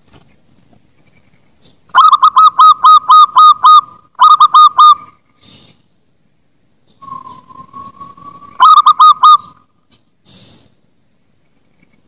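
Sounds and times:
dove cooing: 2.0 - 5.1, 7.0 - 9.6.

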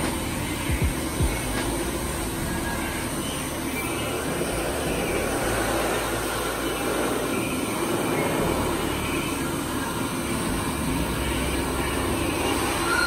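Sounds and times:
grooming dryer blowing air: 4.1 - 8.7.

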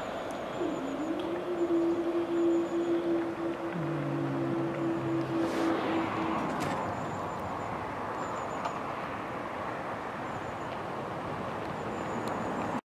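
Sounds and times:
steady hum: 0.0 - 8.0
road traffic noise: 0.0 - 12.8.

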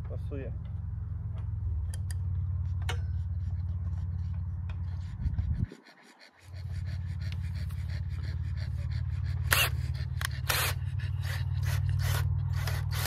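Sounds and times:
steady low hum: 0.0 - 13.0
heavy panting breaths: 4.8 - 11.8.

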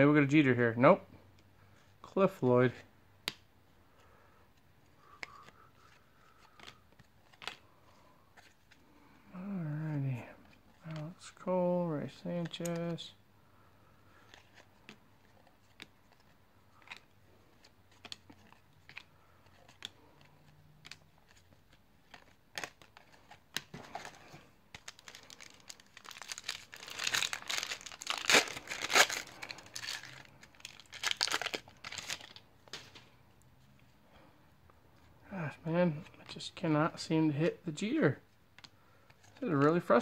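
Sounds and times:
foil wrapper crinkling and tearing: 24.8 - 32.4.

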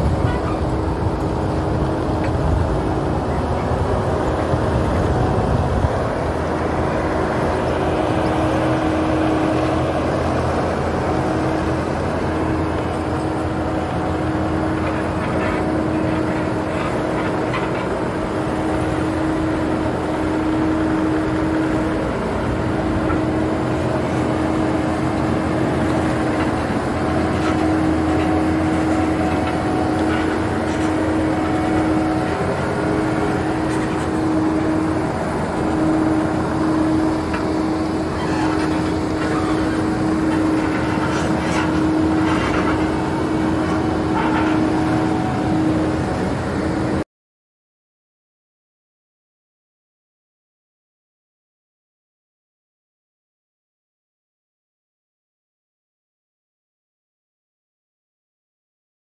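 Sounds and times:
diesel engine running under load: 0.0 - 47.0
steady whine: 0.0 - 47.0.

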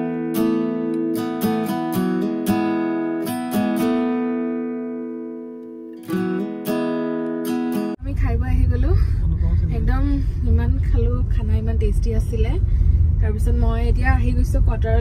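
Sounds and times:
strummed acoustic guitar: 0.0 - 8.0.

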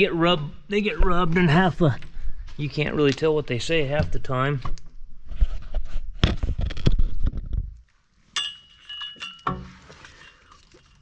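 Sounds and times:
light metallic clink: 8.4 - 10.4.

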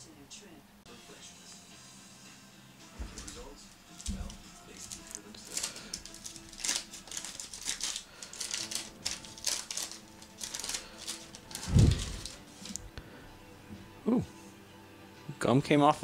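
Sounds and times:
paper wrapper crinkling and tearing: 4.0 - 12.9.

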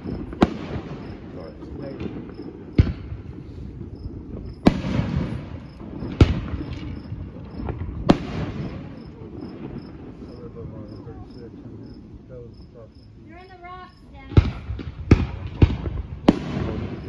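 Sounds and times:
faint firework pops: 0.0 - 10.6, 14.2 - 17.0
firework shells bursting: 0.0 - 12.0, 13.3 - 17.0.

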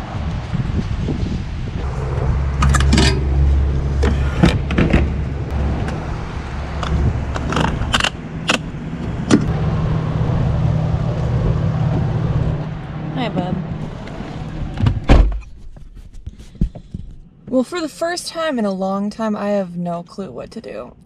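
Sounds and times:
gas pump low hum: 1.8 - 14.8.

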